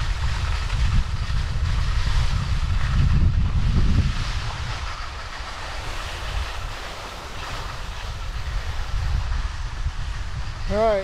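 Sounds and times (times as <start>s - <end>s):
skis scraping over snow: 0.0s - 11.0s
wind buffeting microphone: 0.0s - 11.0s.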